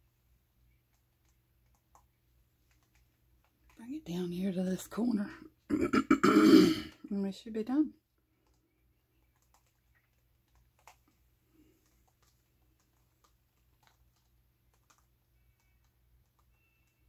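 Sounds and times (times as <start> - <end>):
faint small clicks and taps: 0.7 - 3.8, 8.3 - 17.0.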